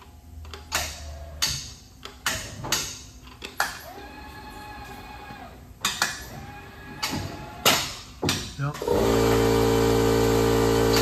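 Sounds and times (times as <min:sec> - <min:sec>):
steady motor hum: 0:03.7 - 0:11.0.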